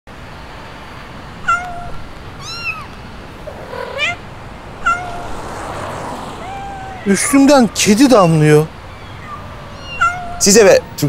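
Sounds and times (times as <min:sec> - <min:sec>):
steady background hiss: 0:00.1 - 0:11.0
cat meowing: 0:01.4 - 0:04.2, 0:04.8 - 0:07.6, 0:09.0 - 0:10.9.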